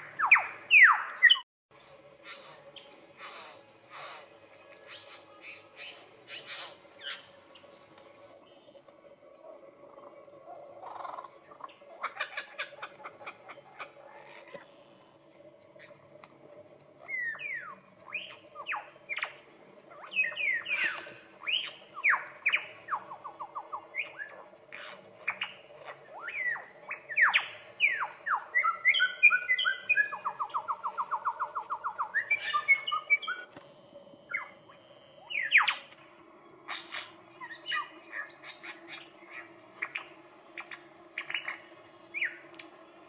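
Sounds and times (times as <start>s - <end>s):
lyrebird singing mimicked calls: 17.0s - 33.5s, 34.3s - 36.0s.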